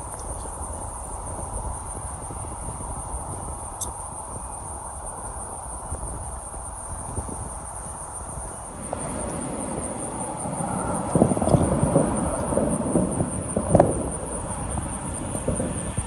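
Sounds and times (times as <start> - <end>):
crickets chirping: 0.0 - 16.0
jet taking off: 0.0 - 16.0.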